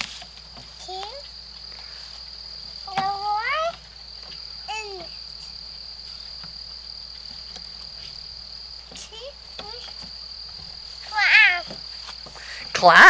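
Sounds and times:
insect chorus drone: 0.0 - 13.0
toddler vocal sounds: 2.9 - 3.8, 4.7 - 5.3, 11.0 - 11.8.

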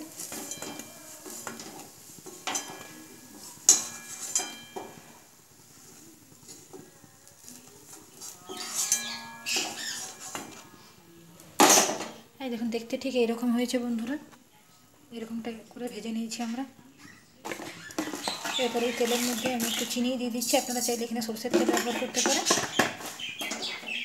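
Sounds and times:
metal spoon scraping a pan: 0.0 - 11.0, 17.4 - 24.0.

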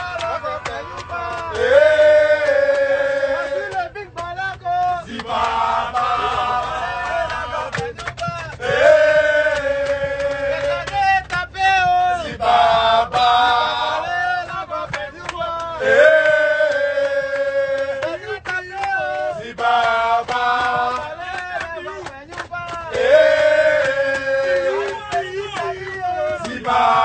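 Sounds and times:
men chanting together: 0.0 - 27.0.

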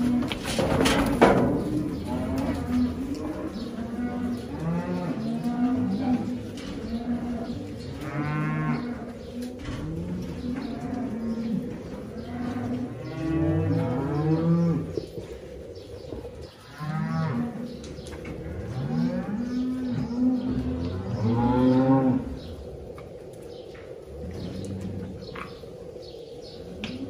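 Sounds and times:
cows mooing: 0.0 - 15.0, 16.6 - 22.5.

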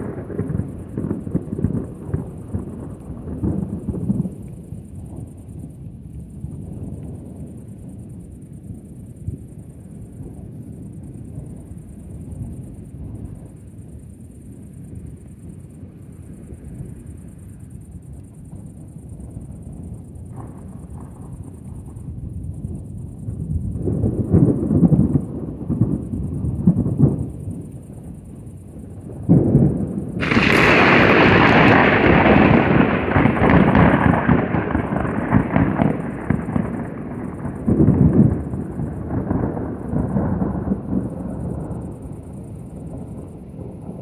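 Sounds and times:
loud thunder crack: 0.0 - 4.5, 23.6 - 27.4, 29.0 - 44.0
thunder rumbling: 0.0 - 44.0.

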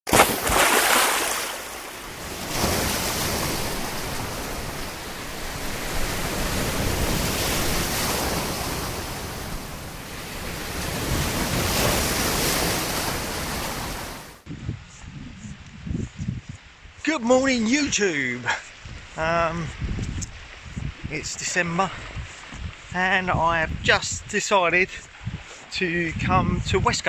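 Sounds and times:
sea surf breaking: 0.1 - 14.5.

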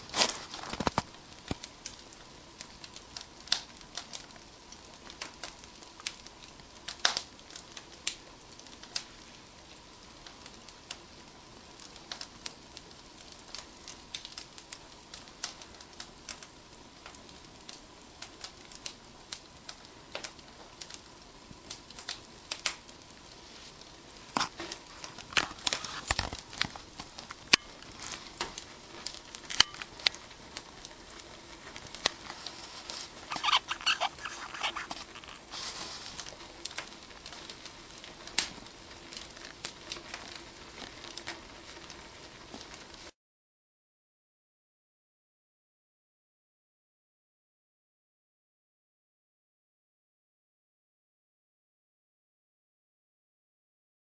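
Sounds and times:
wood fire crackling: 0.0 - 43.2.

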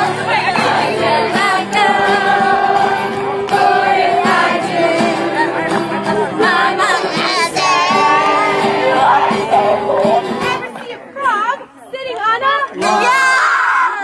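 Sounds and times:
group of voices singing: 0.0 - 10.8
acoustic guitar: 0.0 - 11.4.

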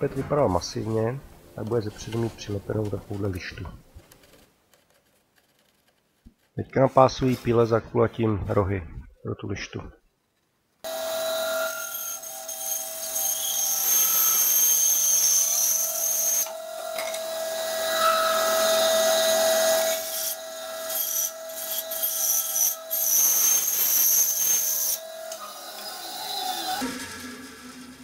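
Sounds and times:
electric saw humming: 10.9 - 28.0
saw blade cutting wood: 10.9 - 28.0.

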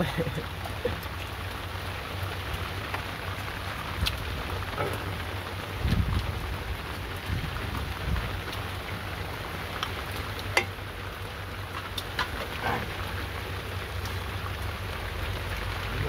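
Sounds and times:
steady rain falling: 0.0 - 16.0.

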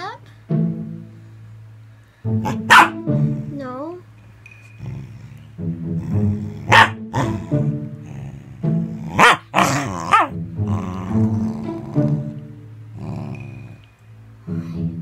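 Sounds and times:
dog yowling: 2.5 - 3.0, 6.7 - 7.6, 9.1 - 12.0
dog growling and grumbling: 4.8 - 13.9.

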